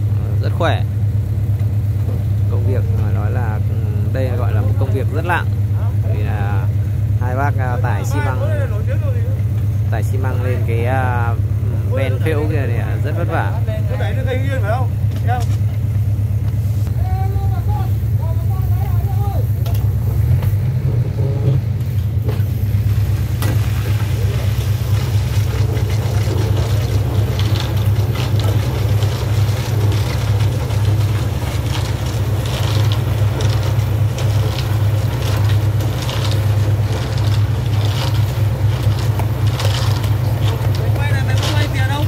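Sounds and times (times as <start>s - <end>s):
diesel engine chugging: 0.0s - 42.0s
knocks and scrapes: 19.6s - 42.0s.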